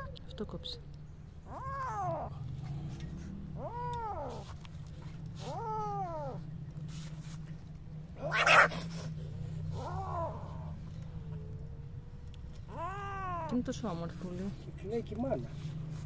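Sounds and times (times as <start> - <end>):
kitten meowing in distress: 1.4 - 2.4, 3.6 - 4.5, 5.4 - 6.4, 12.7 - 13.6.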